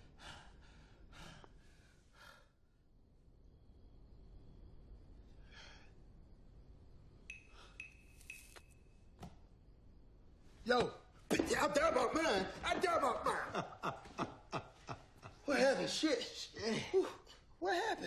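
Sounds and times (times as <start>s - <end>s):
faint breaths and sighs: 0.0s - 3.0s, 5.0s - 6.5s.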